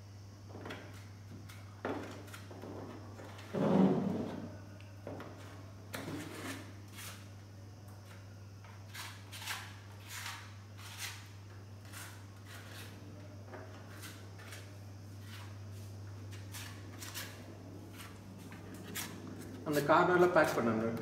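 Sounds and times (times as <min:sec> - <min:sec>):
steady low hum: 0:00.0 - 0:21.0
scraper scraping wet grout: 0:05.9 - 0:07.3, 0:08.6 - 0:19.6.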